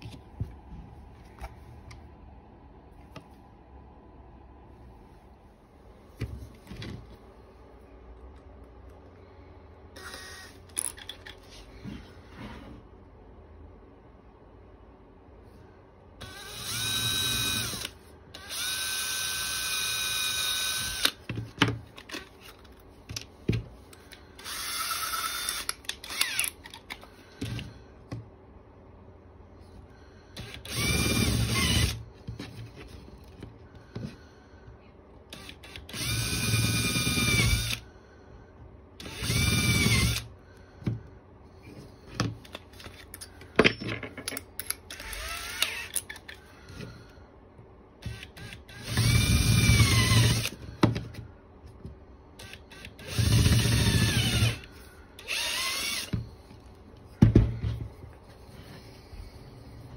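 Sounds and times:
cordless drill whining: 0:10.0 - 0:11.0, 0:16.2 - 0:21.2, 0:24.1 - 0:26.6, 0:30.4 - 0:32.0, 0:35.3 - 0:37.8, 0:39.0 - 0:40.3, 0:44.9 - 0:46.0, 0:48.0 - 0:50.6, 0:52.4 - 0:56.4.

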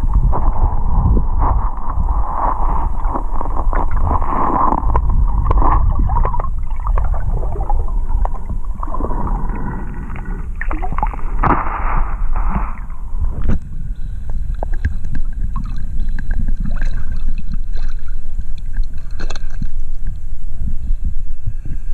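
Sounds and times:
muffled river water rushing: 0:00.0 - 0:21.6
deep steady rumble: 0:00.0 - 0:21.9.

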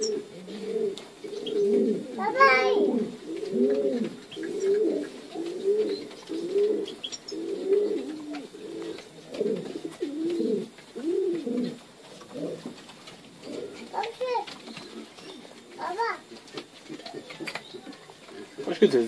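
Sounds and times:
pigeons cooing: 0:00.0 - 0:19.0.

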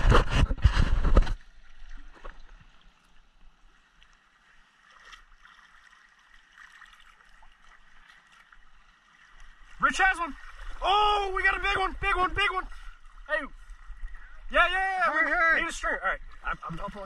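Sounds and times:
water sloshing around wading person: 0:00.0 - 0:17.0
small water splashes: 0:01.1 - 0:17.0.

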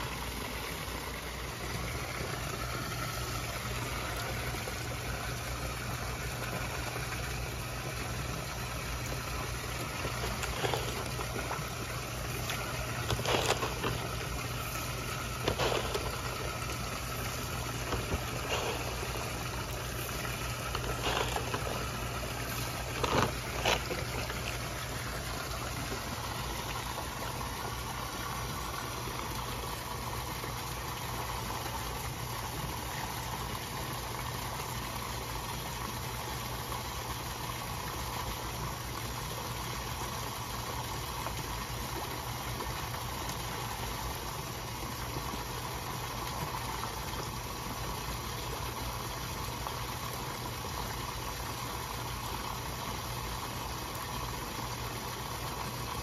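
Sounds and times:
steady low hum: 0:00.0 - 0:33.1
fish splashing and slurping: 0:00.0 - 0:56.0.

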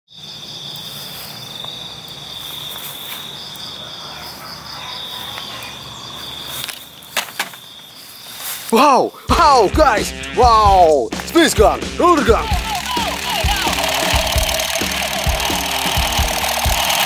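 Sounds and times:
crickets trilling: 0:00.1 - 0:09.3, 0:12.2 - 0:17.0
sharp clicks: 0:12.6 - 0:17.0.

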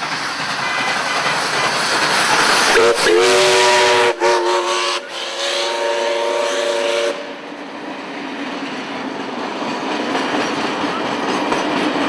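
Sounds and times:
train carriages rolling on rails: 0:00.0 - 0:12.0
steam locomotive whistle: 0:02.6 - 0:07.5.

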